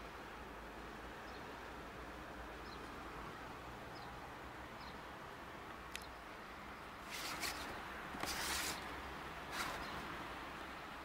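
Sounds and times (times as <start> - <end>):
faint steady hiss: 0.0 - 11.0
rustling scraping noises: 7.0 - 10.1.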